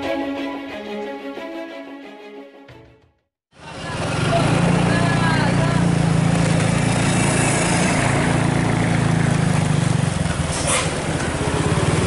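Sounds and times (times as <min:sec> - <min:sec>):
diesel truck engines droning: 0:03.6 - 0:12.0.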